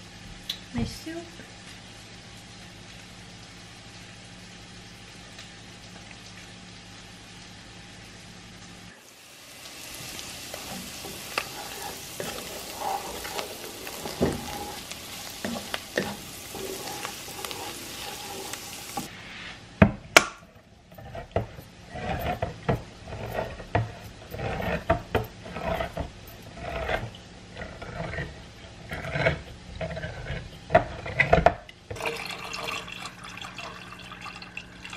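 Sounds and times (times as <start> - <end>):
vegetables sizzling in a pan: 0.0 - 31.1
wooden spoon stirring: 9.7 - 19.2, 20.9 - 34.9.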